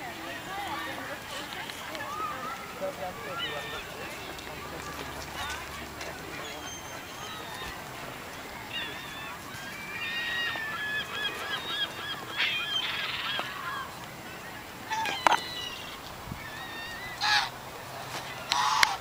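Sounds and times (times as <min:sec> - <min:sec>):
geese honking: 0:00.5 - 0:19.0.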